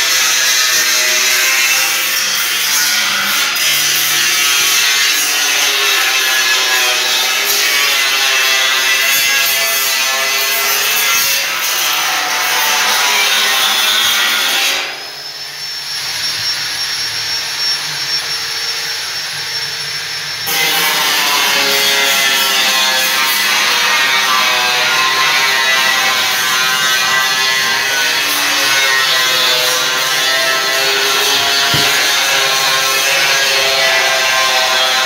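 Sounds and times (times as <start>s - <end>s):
steady high whine: 14.8s - 34.4s
power tool rasping: 20.4s - 35.0s.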